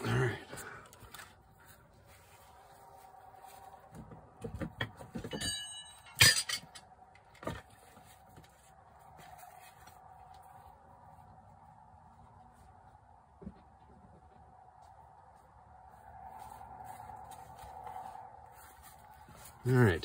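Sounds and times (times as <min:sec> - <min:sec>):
short ringing clink: 0:05.3 - 0:06.6.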